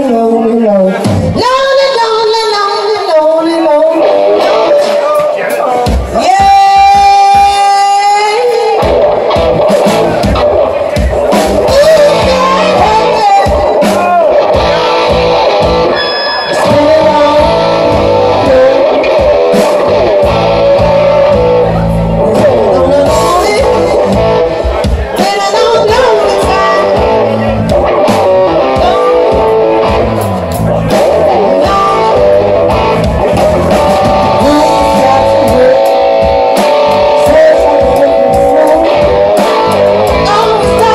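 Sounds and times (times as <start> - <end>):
woman singing: 0.0 - 5.0, 6.1 - 9.0, 11.6 - 14.0, 16.5 - 21.4, 22.2 - 24.3, 25.2 - 27.4, 34.3 - 40.9
bass guitar: 0.0 - 40.9
drums: 0.0 - 40.9
electric guitar: 0.0 - 40.9.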